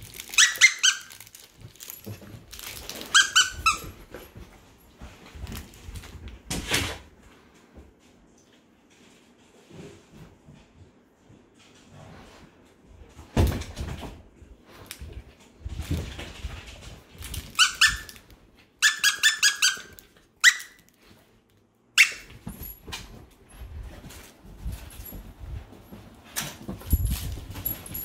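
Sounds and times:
squeaky dog toy squeaking: 0:00.3 - 0:01.2, 0:03.0 - 0:04.0, 0:17.5 - 0:18.2, 0:18.8 - 0:20.9, 0:22.0 - 0:22.3.

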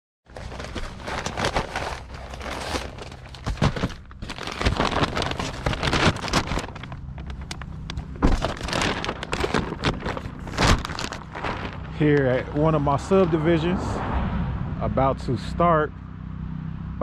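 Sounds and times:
clothing handling noise: 0:00.3 - 0:12.7
paper bag rustling: 0:00.3 - 0:12.7
low hum: 0:00.4 - 0:17.0.

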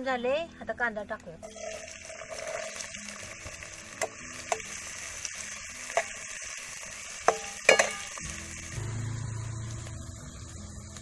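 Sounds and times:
onion sizzling in hot oil: 0:01.4 - 0:11.0
metal spatula scraping pan: 0:07.2 - 0:08.2.

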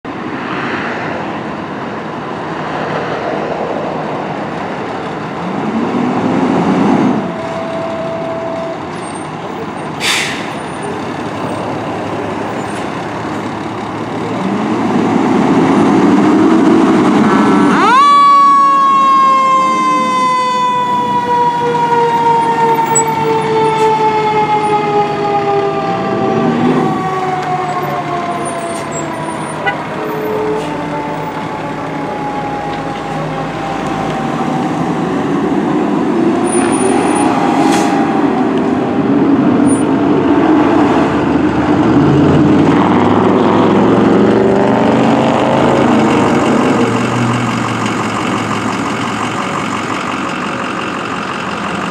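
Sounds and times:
diesel engine revving: 0:01.0 - 0:51.9
mechanical siren wailing: 0:07.1 - 0:09.6, 0:17.4 - 0:39.8
short hiss: 0:10.0 - 0:10.5.

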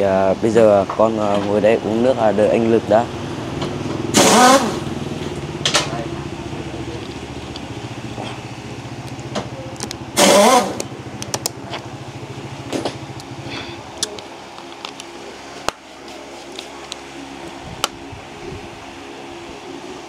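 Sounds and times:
motor humming: 0:02.3 - 0:20.0.

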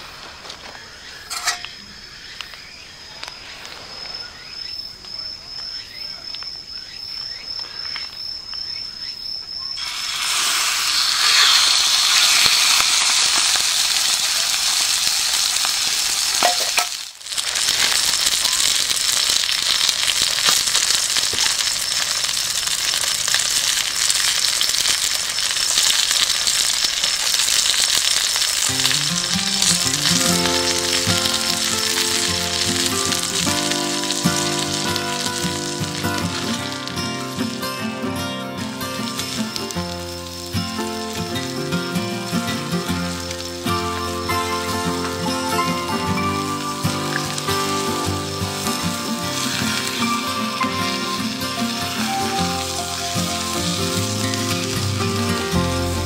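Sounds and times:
food sizzling in a pan: 0:09.8 - 0:38.0, 0:38.6 - 0:56.0
background music: 0:28.7 - 0:56.0.

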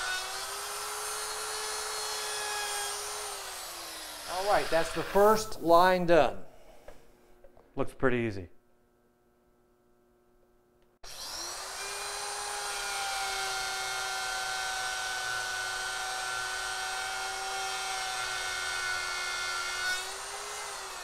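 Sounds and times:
electric router whining: 0:11.1 - 0:19.2.

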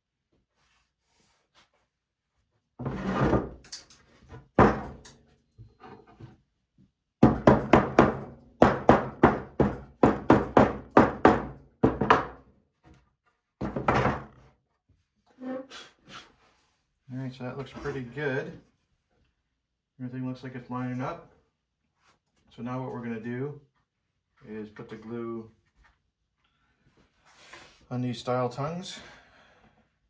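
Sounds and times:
hammer knocking wood: 0:04.6 - 0:05.0, 0:07.2 - 0:12.4.

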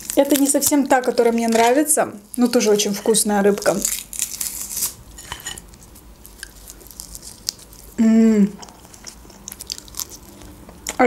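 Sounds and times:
small crackles and clicks: 0:00.0 - 0:04.9
dried fish tearing: 0:00.0 - 0:08.0, 0:08.6 - 0:10.6
woman humming: 0:08.0 - 0:08.7.

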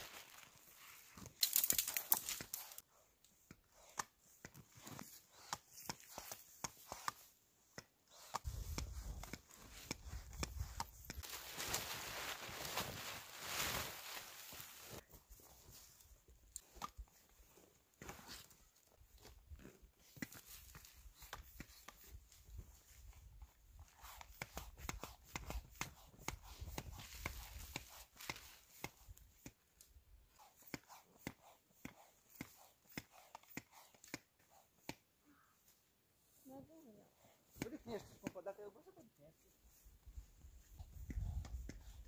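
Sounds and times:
tent fabric rustling: 0:00.0 - 0:02.8, 0:08.1 - 0:16.0.

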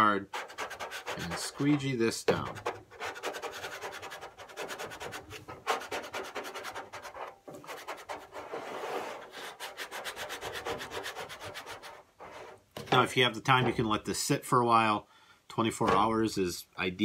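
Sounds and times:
squeegee scraping over tape: 0:00.2 - 0:12.7.

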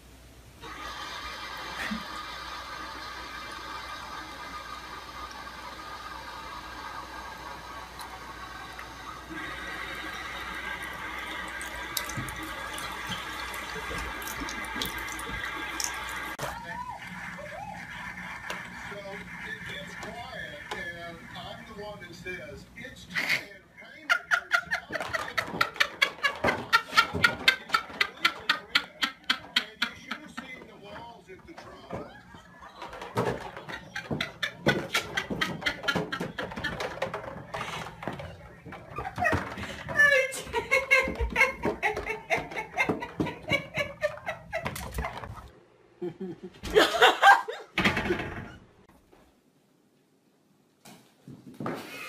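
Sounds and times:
faucet water running into sink: 0:00.6 - 0:16.4
water splashes and drips: 0:10.4 - 0:16.4.

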